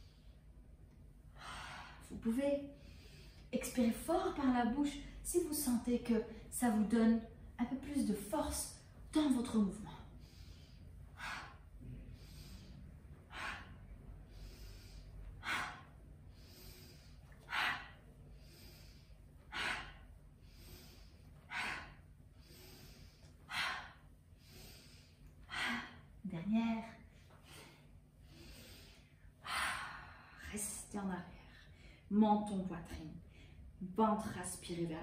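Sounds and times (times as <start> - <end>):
woman inhaling: 9.9 - 26.2, 27.1 - 30.7.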